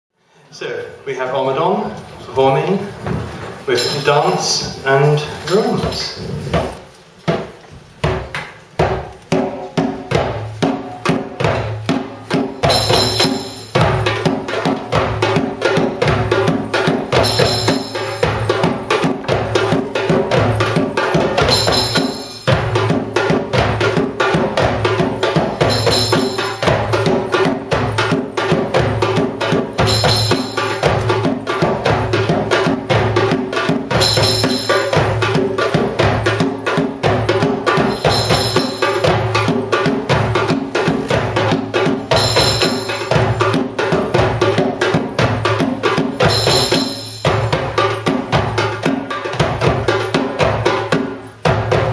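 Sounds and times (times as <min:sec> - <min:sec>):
goblet drums playing fast rhythm: 0:02.4 - 0:51.9
high ringing accent: 0:03.7 - 0:06.2, 0:17.1 - 0:18.7, 0:25.5 - 0:27.1, 0:29.8 - 0:31.0, 0:33.9 - 0:35.3, 0:37.9 - 0:39.4, 0:42.1 - 0:43.5, 0:46.2 - 0:47.7.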